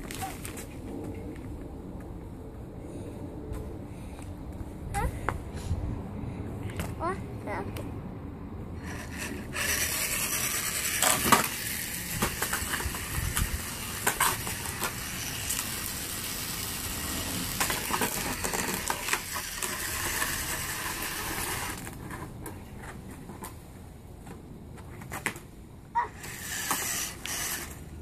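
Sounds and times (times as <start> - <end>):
rc truck rattling hiss on concrete: 8.8 - 22.3, 26.0 - 28.0.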